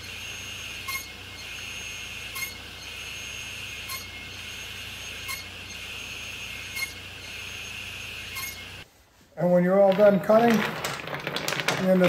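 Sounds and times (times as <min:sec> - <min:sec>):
table saw running: 0:00.0 - 0:08.8.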